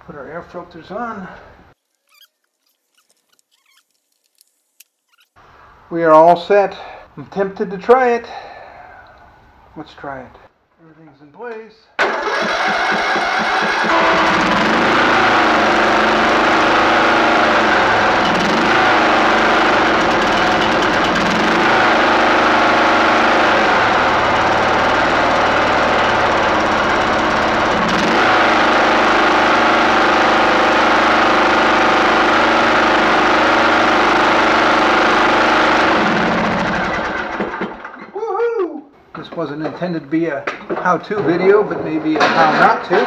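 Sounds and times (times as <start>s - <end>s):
lawn mower engine running: 12.0s - 38.0s.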